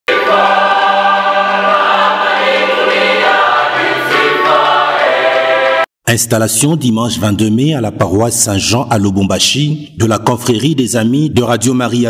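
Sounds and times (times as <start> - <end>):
choir singing in harmony: 0.1 - 5.9.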